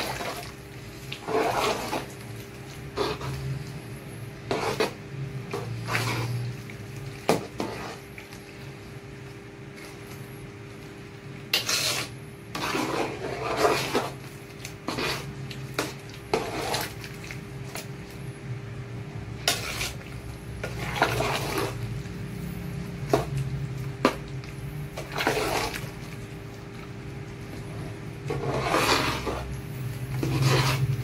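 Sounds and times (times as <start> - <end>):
stew sloshing: 0.0 - 3.7, 5.6 - 10.2, 11.6 - 17.9, 19.5 - 22.2, 23.1 - 31.0
ladle scraping metal pot: 0.0 - 3.8, 4.4 - 6.6, 7.2 - 8.4, 11.5 - 17.4, 19.4 - 21.8, 25.0 - 26.1, 27.6 - 31.0
steady low hum: 0.0 - 31.0.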